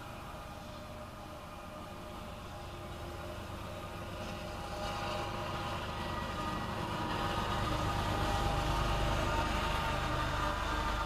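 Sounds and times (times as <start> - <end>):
diesel locomotive engine rumble: 0.0 - 11.0.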